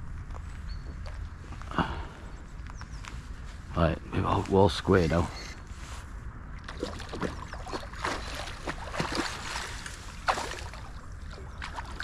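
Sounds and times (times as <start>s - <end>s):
water splashing and sloshing: 6.5s - 12.0s.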